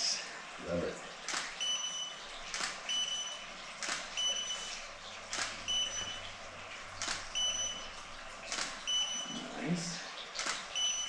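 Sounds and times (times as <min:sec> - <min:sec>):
camera shutter firing: 0:01.3 - 0:01.6, 0:02.5 - 0:02.8, 0:03.8 - 0:04.2, 0:05.3 - 0:05.6, 0:08.5 - 0:08.8, 0:10.4 - 0:10.7
short high flash beep: 0:10.8 - 0:11.0.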